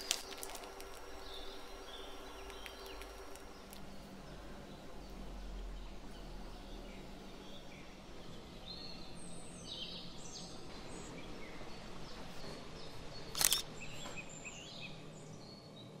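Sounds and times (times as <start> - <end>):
low steady hum: 0.0 - 16.0
camera shutter click: 13.3 - 13.7.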